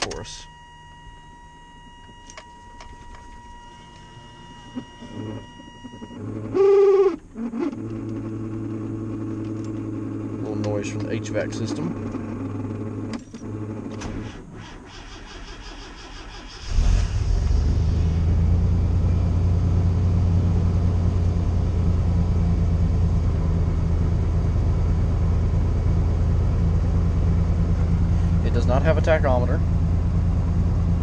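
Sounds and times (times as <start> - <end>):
truck engine idling: 7.8 - 31.0.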